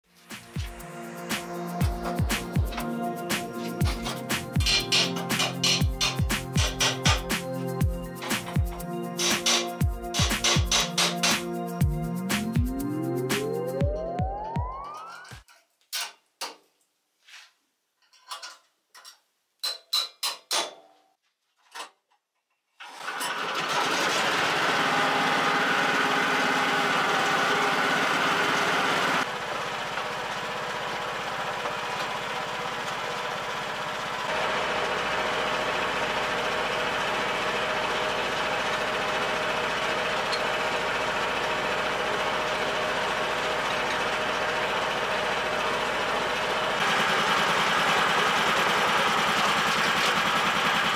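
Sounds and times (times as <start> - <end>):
tractor engine running: 0.5 - 14.2, 23.0 - 50.9
sharp knocks and clicks: 3.8 - 7.3, 8.2 - 11.4.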